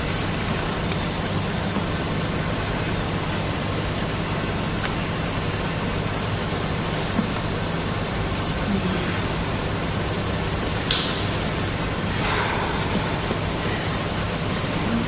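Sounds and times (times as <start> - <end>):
low hum: 10.0 - 15.0.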